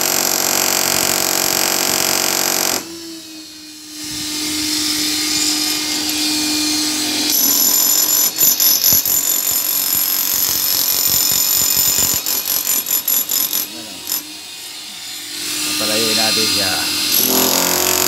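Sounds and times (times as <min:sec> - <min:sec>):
demolition hammer motor whining: 0:00.0 - 0:18.0
demolition hammer chisel pounding: 0:07.2 - 0:14.2, 0:17.0 - 0:18.0.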